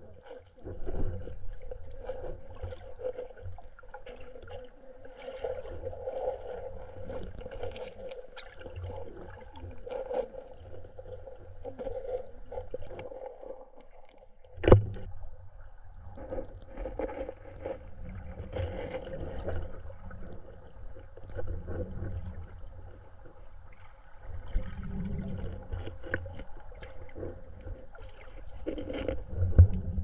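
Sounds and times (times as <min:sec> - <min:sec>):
underwater stream rushing: 0:00.0 - 0:30.0
small ticks and crackles: 0:16.0 - 0:21.8.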